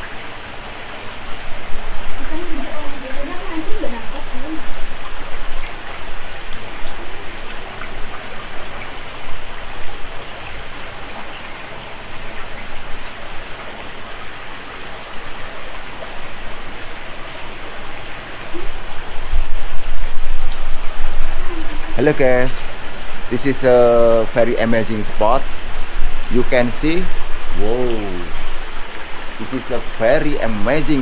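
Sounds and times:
creek water running over rocks: 0:00.0 - 0:31.0
faint high whine: 0:14.0 - 0:31.0.

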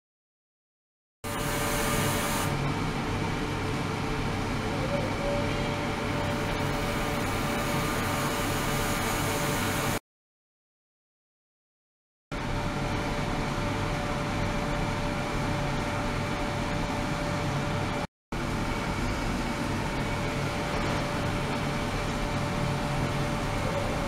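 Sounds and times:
ultrasonic tank hiss and hum: 0:12.4 - 0:24.0.

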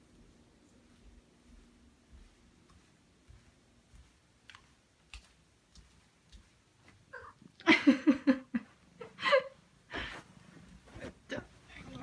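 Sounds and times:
faint clicks and taps: 0:01.0 - 0:07.0.

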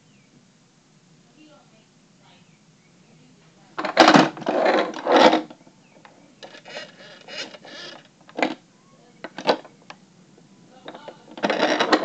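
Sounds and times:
rustling: 0:03.3 - 0:10.0, 0:10.7 - 0:12.0
rasping handling scrapes: 0:06.4 - 0:08.1.

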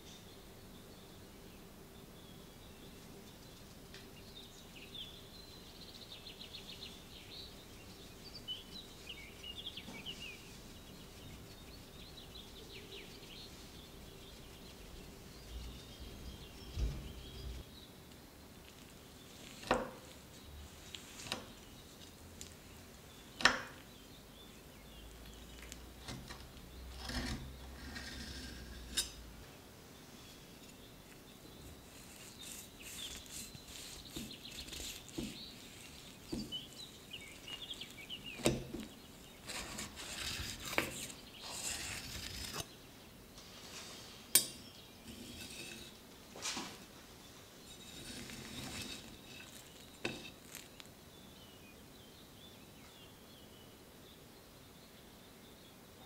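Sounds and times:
faint scraping and rustling: 0:05.8 - 0:51.0.

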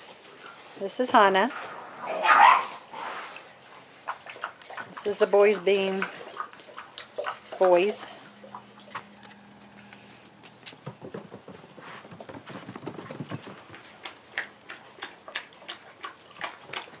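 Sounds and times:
puppy paws pattering on boards: 0:08.9 - 0:17.0.

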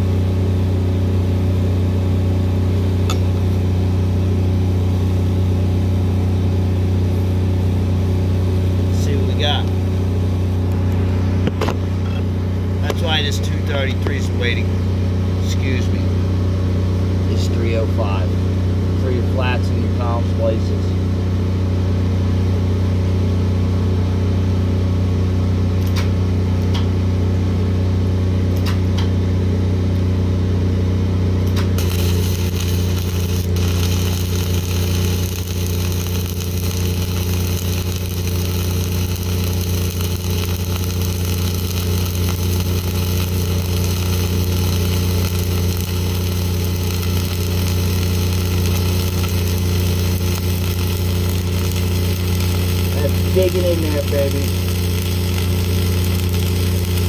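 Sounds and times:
diesel welder engine humming: 0:00.0 - 0:57.0
welding arc hissing: 0:31.5 - 0:57.0.

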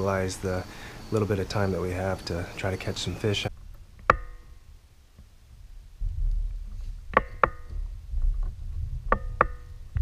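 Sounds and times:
low rumble: 0:03.5 - 0:10.0
gear knocking on plastic kayak: 0:07.1 - 0:10.0.

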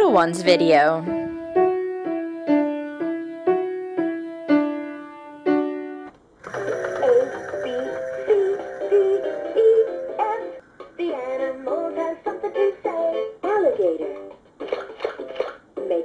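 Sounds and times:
electric piano jingle: 0:06.4 - 0:10.6
electronic toy music tune: 0:06.4 - 0:10.6.

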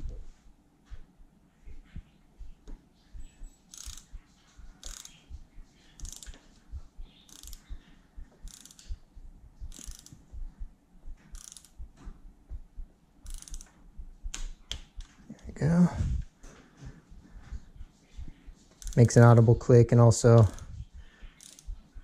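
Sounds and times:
ratcheting wrench clicks: 0:03.7 - 0:04.1, 0:04.8 - 0:05.2, 0:06.0 - 0:06.4, 0:07.3 - 0:07.7, 0:08.4 - 0:09.0, 0:09.7 - 0:10.2, 0:11.3 - 0:11.8, 0:13.2 - 0:13.7, 0:18.8 - 0:19.2, 0:21.4 - 0:21.8.

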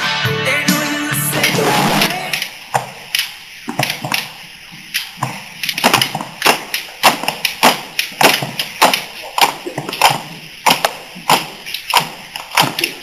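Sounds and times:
young voices chanting: 0:00.5 - 0:02.5
steady beat of sharp knocks: 0:03.7 - 0:04.4, 0:05.2 - 0:13.0.

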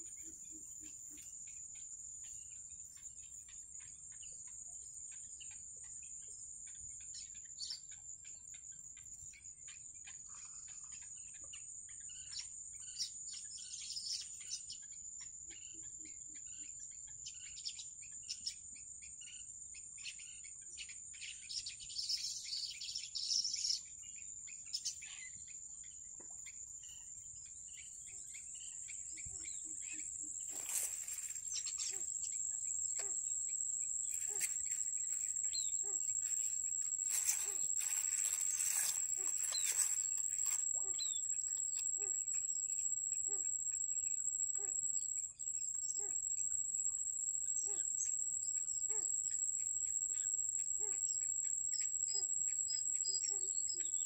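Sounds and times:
heron chicks peeping: 0:28.1 - 0:43.9
high-pitched insect buzz: 0:29.1 - 0:45.2.

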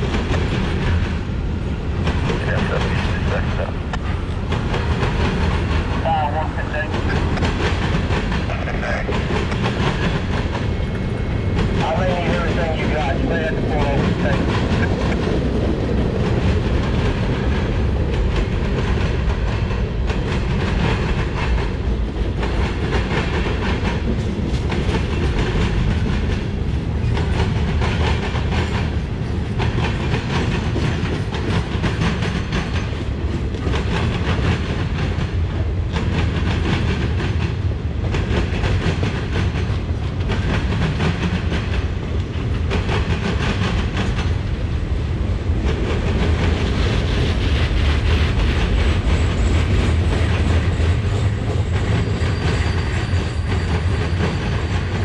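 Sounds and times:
steel wheels rumbling on rail: 0:00.0 - 0:55.0.

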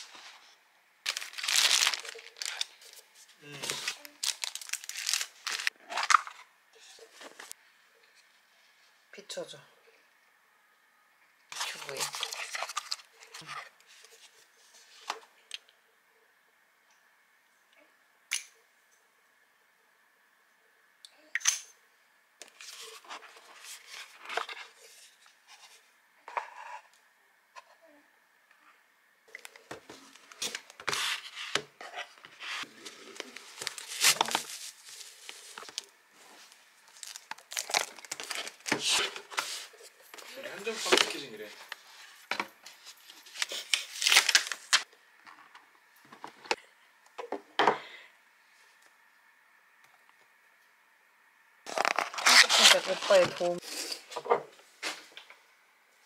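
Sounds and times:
packaging rustling and scraping: 0:01.1 - 0:06.4, 0:11.5 - 0:15.1, 0:29.4 - 0:44.9, 0:51.7 - 0:54.2.

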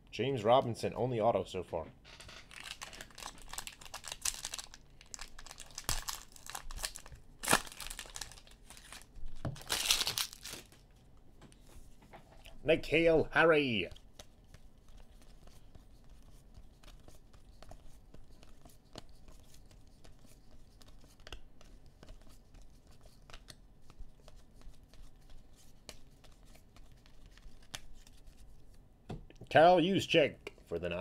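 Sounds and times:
trading cards flipped by hand: 0:14.2 - 0:23.6, 0:24.2 - 0:28.7.

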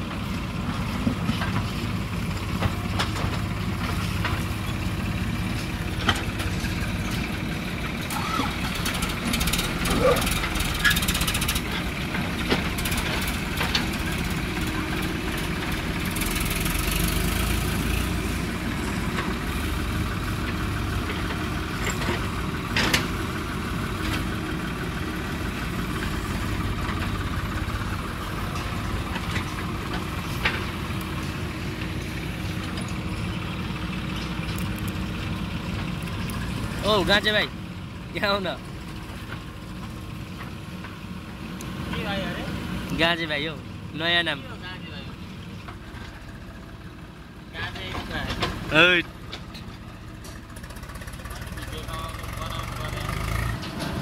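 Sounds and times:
diesel engines running: 0:00.0 - 0:54.0
sharp knocks and clatter: 0:00.6 - 0:07.4, 0:08.6 - 0:24.4, 0:25.1 - 0:33.2, 0:47.6 - 0:54.0.

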